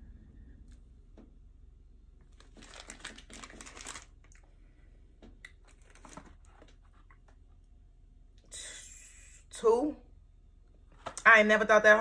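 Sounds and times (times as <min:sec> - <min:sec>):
snack packaging crinkling: 0:02.3 - 0:04.5, 0:05.5 - 0:07.2.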